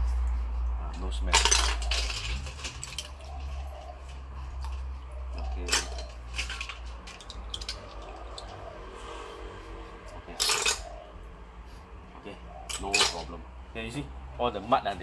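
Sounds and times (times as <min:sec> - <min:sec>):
snail shells clinking on metal bowl: 0:01.1 - 0:08.6, 0:10.3 - 0:11.0, 0:12.7 - 0:13.3.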